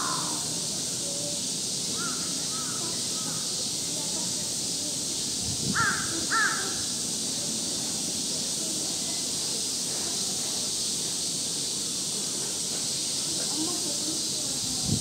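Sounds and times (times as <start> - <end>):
crow cawing: 0.0 - 0.4, 2.0 - 3.4, 5.7 - 6.9
steady high hiss: 0.0 - 15.0.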